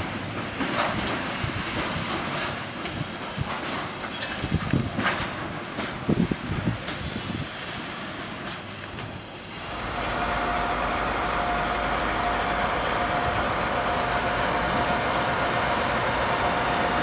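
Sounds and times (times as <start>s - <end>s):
diesel locomotive engine rumble: 0.0s - 17.0s
freight wagons clicking over rails: 0.0s - 17.0s.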